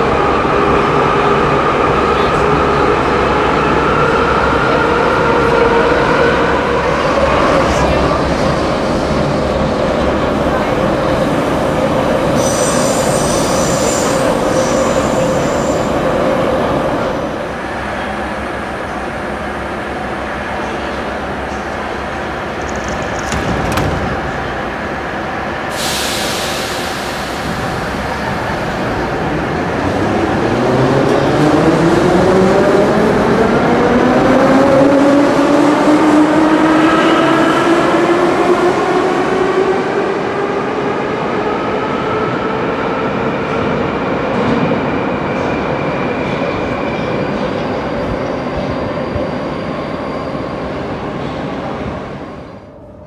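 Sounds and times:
wheel and rail rumble: 4.2 - 32.2
air hiss: 12.3 - 15.8, 25.7 - 28.6.

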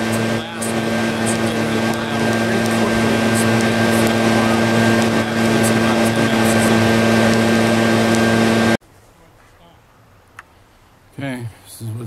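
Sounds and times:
leaf blower running: 0.0 - 8.8.

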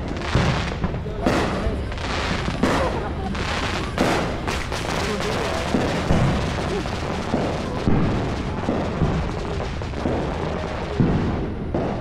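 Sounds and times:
firework bangs: 0.0 - 12.0
fountain firework hissing: 0.0 - 12.0.

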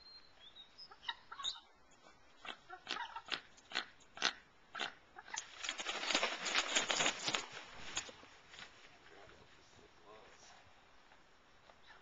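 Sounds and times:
eagle calling: 0.0 - 1.8
wings beating: 5.3 - 8.2.

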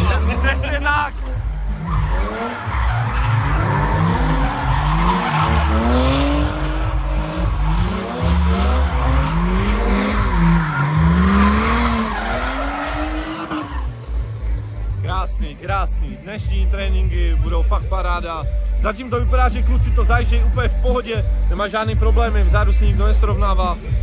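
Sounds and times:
diesel engine revving: 0.0 - 17.3
tyres skidding and squealing: 0.0 - 17.8.

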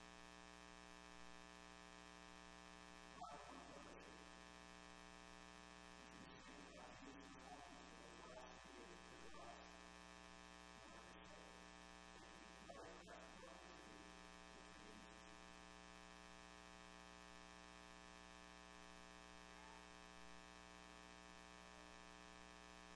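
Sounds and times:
faint electrical buzz: 0.0 - 22.9
faint voice: 3.2 - 4.4, 6.0 - 9.8, 10.7 - 15.4, 19.4 - 20.0.

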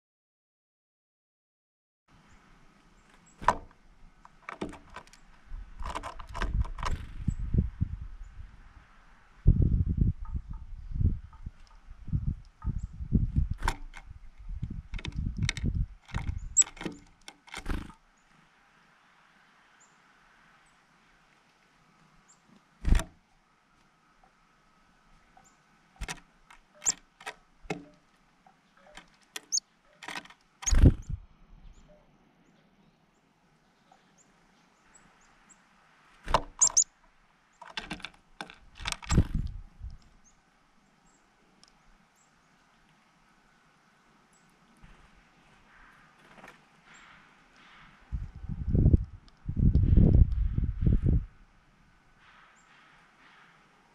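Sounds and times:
bird clicking and tapping on wood: 3.4 - 5.2, 5.8 - 7.0, 13.5 - 18.0, 26.0 - 28.0, 28.8 - 30.9, 36.3 - 36.8, 37.6 - 40.0.

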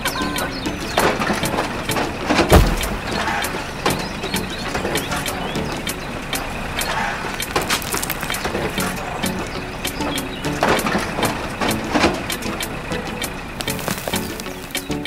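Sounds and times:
toy excavator running: 0.0 - 15.0
heavy low thump: 2.5 - 3.3.

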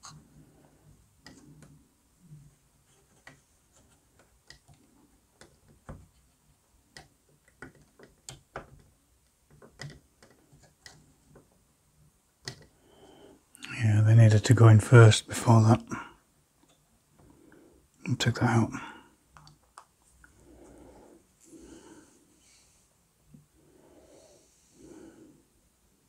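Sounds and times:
small wooden parts clicking: 6.8 - 11.5, 12.4 - 12.8.

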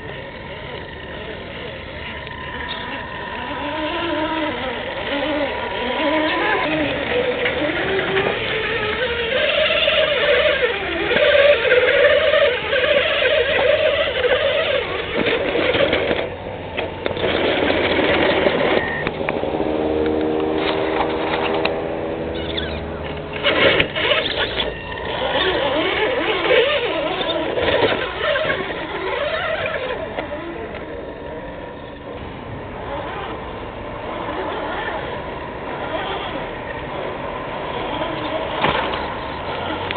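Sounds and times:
electric motor whining under load: 0.0 - 39.9.

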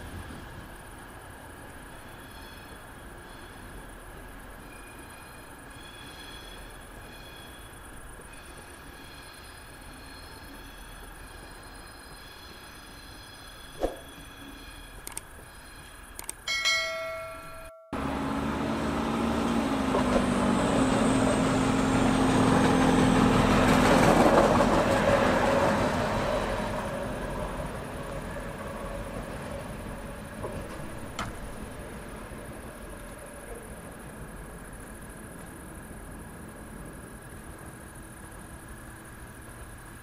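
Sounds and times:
diesel train passing: 0.0 - 40.0
distant rail yard background: 0.0 - 40.0
brief ringing tone: 16.5 - 18.0.

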